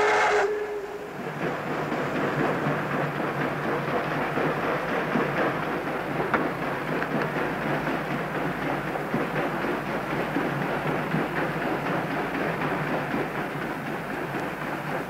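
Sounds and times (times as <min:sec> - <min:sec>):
paddle wheels churning water: 0:00.0 - 0:15.0.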